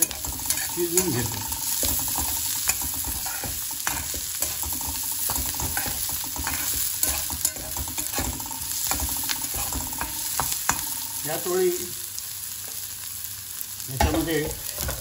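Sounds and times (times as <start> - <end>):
spatula scraping and tapping pan: 0.0 - 11.1
vegetables sizzling in hot oil: 0.0 - 15.0.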